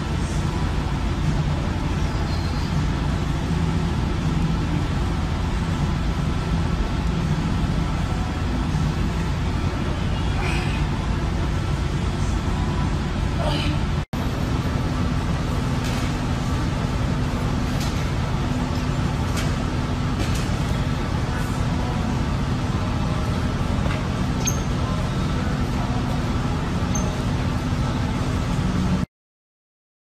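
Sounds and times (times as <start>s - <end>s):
low rumble with hum: 0.0s - 29.1s.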